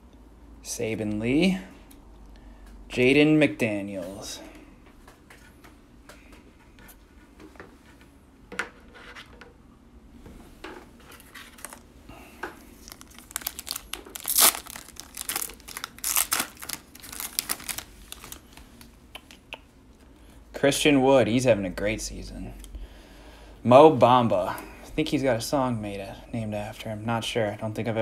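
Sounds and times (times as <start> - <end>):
wrapper crinkling and tearing: 11.4 - 11.9, 12.7 - 18.9.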